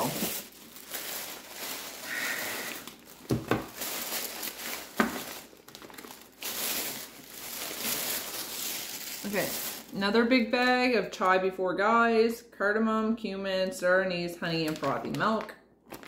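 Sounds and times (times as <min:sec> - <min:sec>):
plastic bag crinkling: 0:00.0 - 0:10.3, 0:14.4 - 0:16.0.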